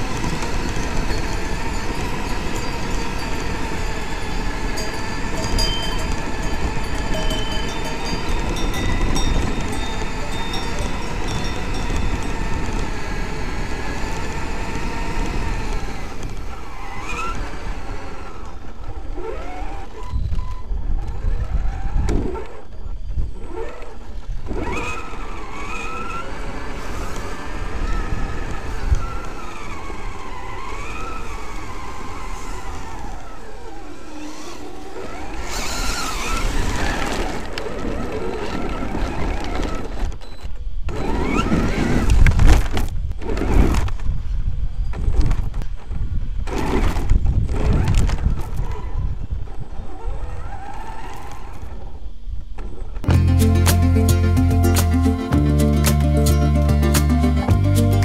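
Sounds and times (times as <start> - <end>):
electric motor whining: 0.0 - 40.2, 40.9 - 43.9
tyres rumbling on rough ground: 0.0 - 58.0.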